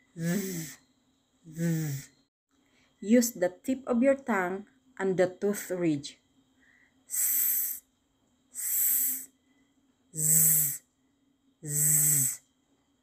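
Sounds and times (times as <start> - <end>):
woman making buzzing z sound: 0.0 - 0.8, 1.5 - 2.1, 7.1 - 7.8, 8.6 - 9.3, 10.2 - 10.8, 11.6 - 12.4
woman making hissing s sound: 0.1 - 0.8, 1.5 - 2.1, 7.1 - 7.8, 8.6 - 9.3, 10.2 - 10.8, 11.6 - 12.4.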